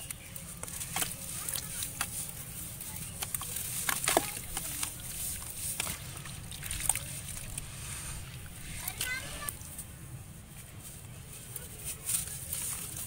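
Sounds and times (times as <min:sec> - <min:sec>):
hands sloshing through water: 0:00.6 - 0:09.6.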